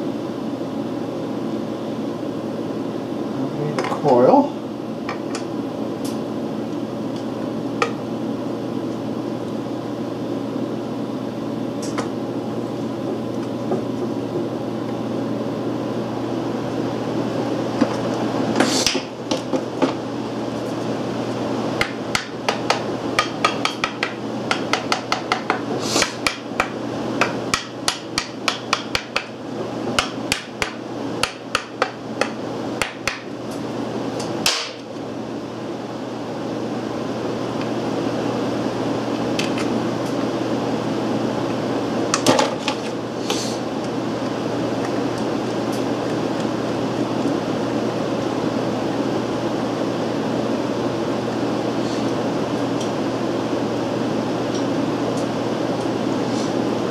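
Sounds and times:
steady low hum: 0.0 - 56.9.

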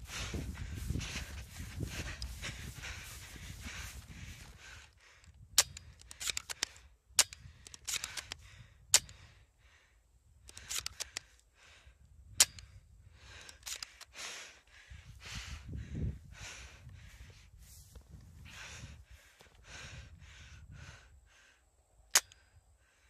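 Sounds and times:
dry grass rustling: 0.0 - 6.6, 16.4 - 19.4
clicks: 10.4 - 11.5.

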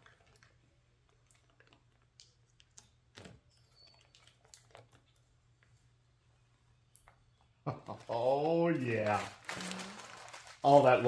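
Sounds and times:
paper clicks and crinkles: 7.9 - 11.0.

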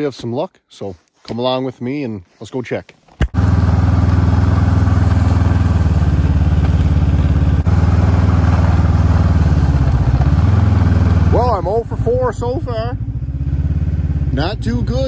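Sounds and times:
snowmobile engine running: 3.4 - 15.0.

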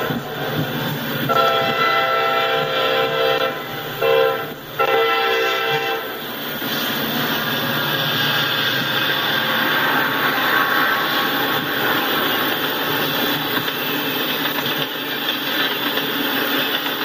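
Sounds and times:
locomotive horn blasts: 1.3 - 6.1
tank cars rolling on rails: 6.5 - 17.0.

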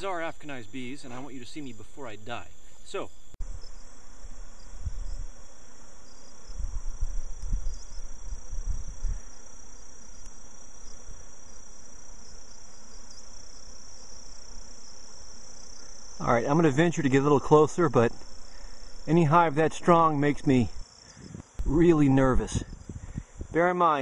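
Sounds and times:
honey bees buzzing: 0.0 - 24.0
low rumble on microphone: 6.5 - 9.4.

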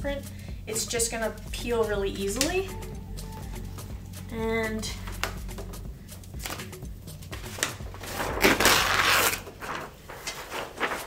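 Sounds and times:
paper tearing and rustling: 6.4 - 11.0.

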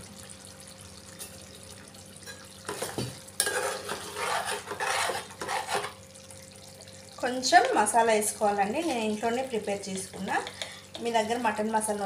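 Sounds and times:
ladle scraping a metal pot: 2.7 - 6.0.

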